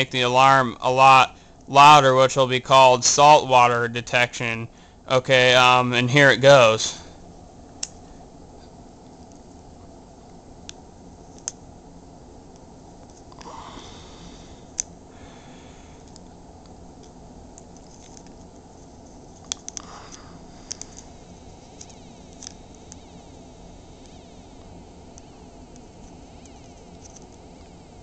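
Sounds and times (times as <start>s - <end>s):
metal connectors clicking on plastic: 19.4s - 19.9s, 20.7s - 21.1s
faint high-pitched alarm tone: 21.1s - 28.0s.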